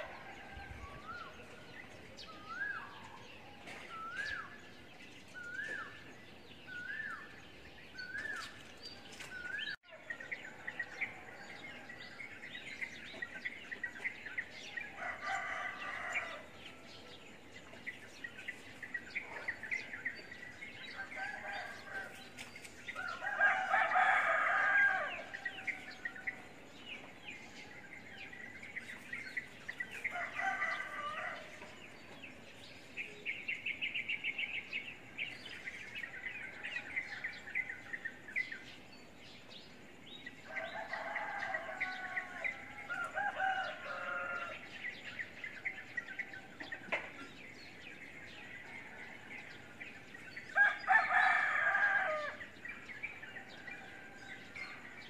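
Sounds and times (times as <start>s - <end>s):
small birds chirping: 0.0s - 55.0s
roosters crowing: 14.6s - 17.6s, 19.2s - 26.8s, 27.4s - 32.0s, 40.3s - 46.8s, 50.4s - 55.0s.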